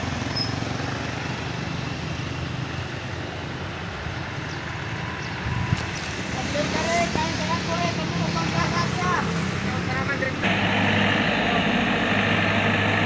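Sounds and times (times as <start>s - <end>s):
diesel engine running: 8.6s - 13.0s.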